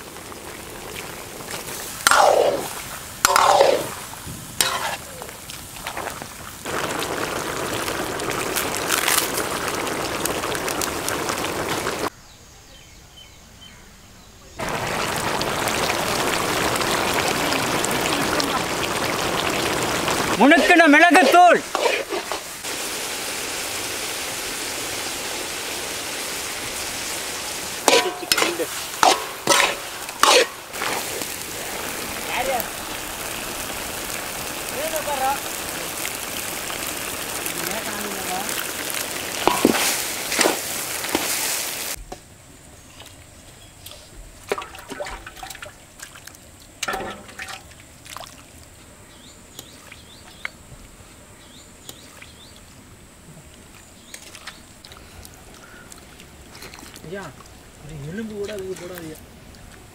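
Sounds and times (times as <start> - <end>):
meat sizzling in oil: 0.0 - 12.1, 14.6 - 42.0
metal ladle clanking and scraping: 3.2 - 3.9, 4.6 - 5.1, 27.8 - 30.6, 46.8 - 47.7
ladle scraping a pan: 4.6 - 5.1, 21.2 - 22.5, 27.8 - 31.2.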